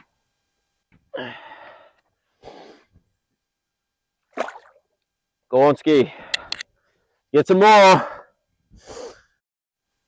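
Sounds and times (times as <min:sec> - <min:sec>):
person exhaling: 0:01.1 - 0:02.9, 0:08.1 - 0:09.4
fish splashing into water: 0:04.3 - 0:04.8.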